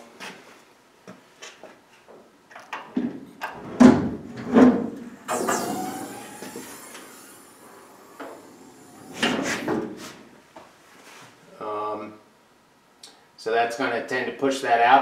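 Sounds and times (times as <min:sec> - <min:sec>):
scraping creaking slide: 0:09.0 - 0:10.2.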